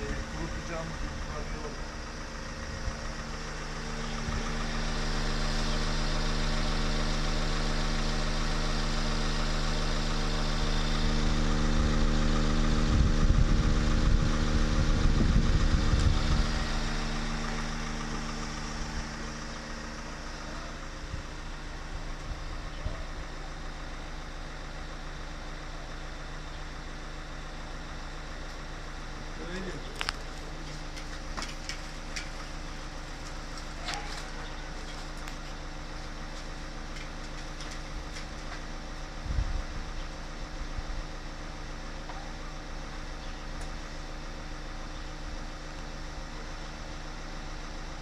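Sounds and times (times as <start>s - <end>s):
louder low rumble: 0.0s - 7.4s, 9.9s - 24.3s, 39.2s - 40.0s
vehicle engine idling: 0.0s - 48.0s.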